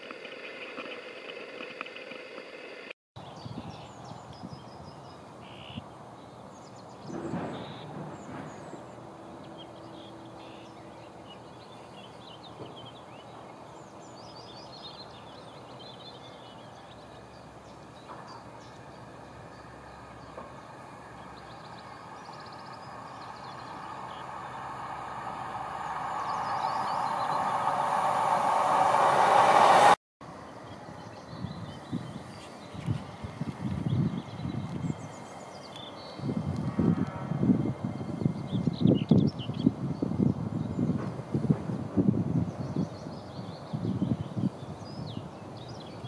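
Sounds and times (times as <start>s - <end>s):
birds chirping: 3.2s - 30.0s
diesel train approaching: 4.9s - 46.0s.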